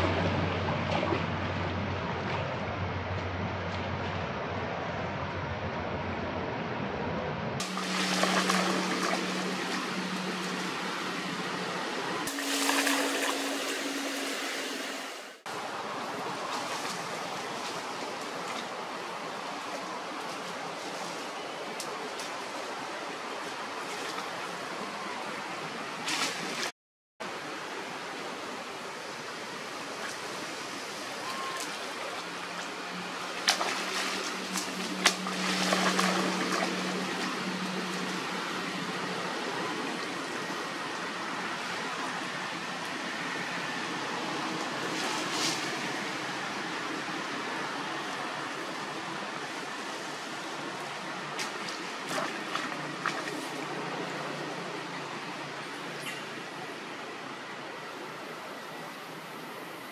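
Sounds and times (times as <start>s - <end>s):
low hum: 0.0s - 15.4s
running water rushing: 7.6s - 59.7s.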